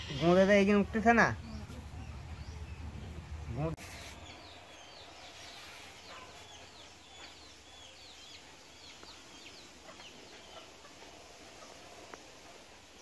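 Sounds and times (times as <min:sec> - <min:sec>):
birds chirping: 0:00.0 - 0:13.0
faint background noise: 0:00.0 - 0:13.0.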